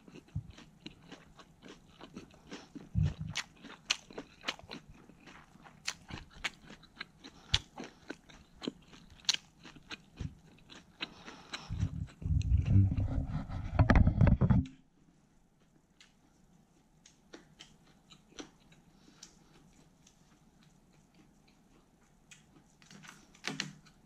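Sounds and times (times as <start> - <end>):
chewing and crunching lettuce: 0.0 - 13.8, 15.6 - 24.0.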